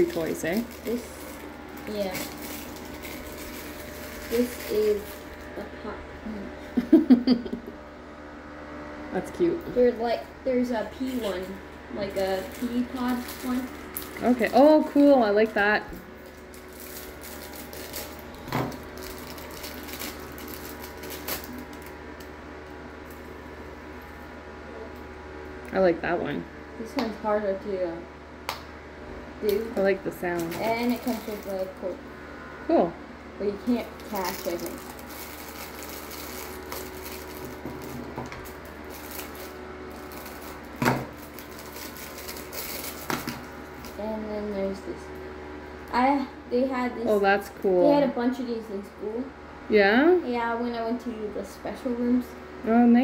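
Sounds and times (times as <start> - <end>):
plastic bag crinkling: 0.0 - 5.6, 11.0 - 22.0, 30.2 - 31.8, 33.6 - 44.0.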